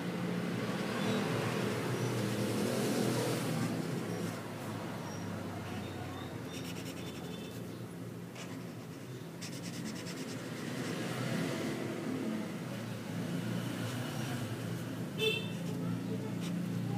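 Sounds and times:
marker squeaking on paper: 0:05.6 - 0:10.9.

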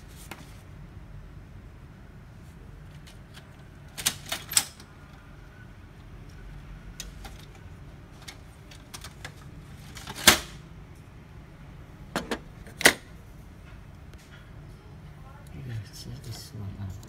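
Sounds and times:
printer parts clicking and knocking: 0:12.1 - 0:13.1.

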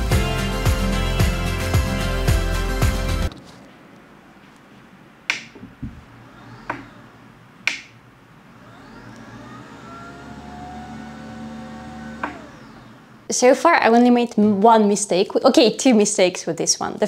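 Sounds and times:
desk lift motor whirring: 0:05.3 - 0:13.3
sharp clicks: 0:07.6 - 0:08.0.

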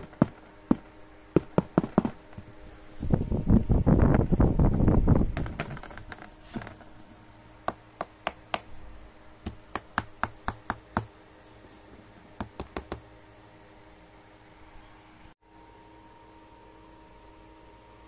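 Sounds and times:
handling noise: 0:00.0 - 0:03.8.

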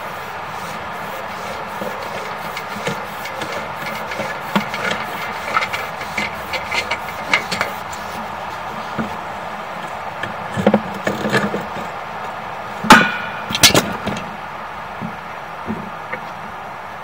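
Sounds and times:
steady hum: 0:00.0 - 0:17.0
equipment knocking and clattering: 0:01.3 - 0:09.2, 0:09.8 - 0:11.9.

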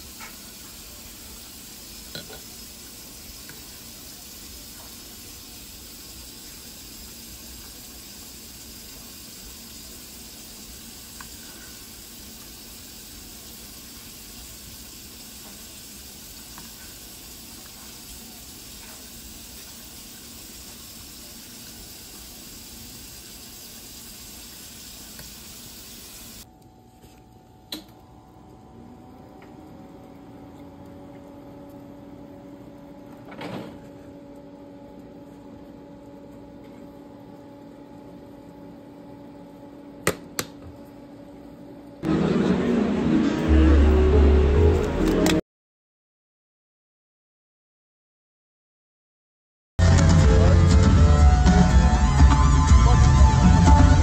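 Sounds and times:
chili simmering with sizzling hiss: 0:00.0 - 0:26.5.

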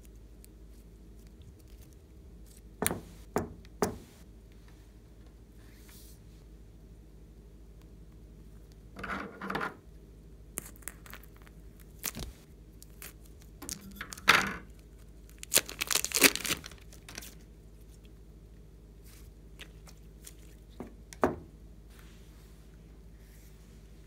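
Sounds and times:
plastic bag crinkling and tearing: 0:10.6 - 0:18.0.

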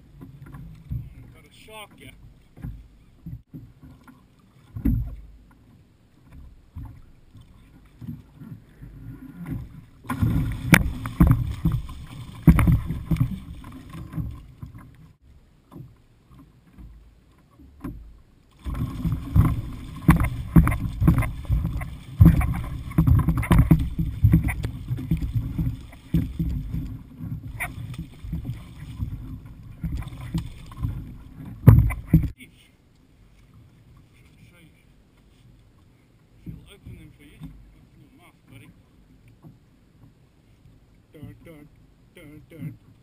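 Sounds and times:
water splashing and slapping: 0:00.0 - 0:32.4.

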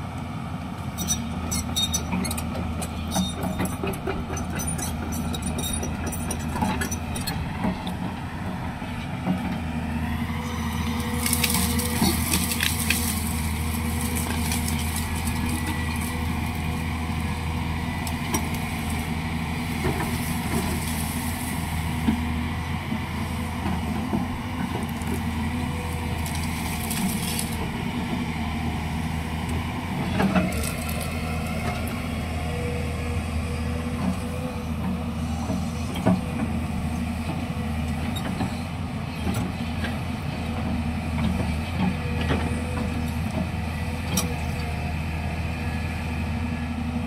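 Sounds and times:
excavator diesel engine running: 0:00.0 - 0:47.0
branches cracking and snapping: 0:10.9 - 0:22.2, 0:23.8 - 0:27.8, 0:30.2 - 0:31.6.

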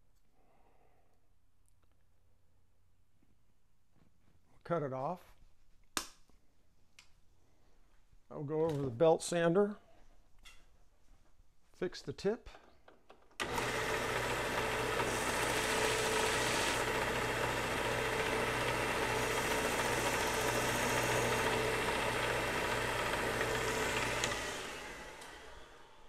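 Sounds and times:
belt sander running: 0:13.4 - 0:26.0.

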